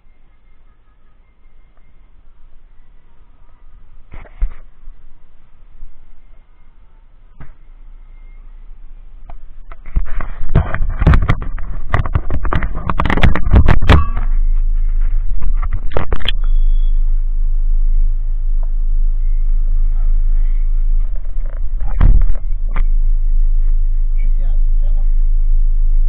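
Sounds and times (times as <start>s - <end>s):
car engine and tyres rumbling: 0.0s - 26.0s
knocks and rattles: 9.7s - 16.4s
brief high beep: 16.0s - 17.2s.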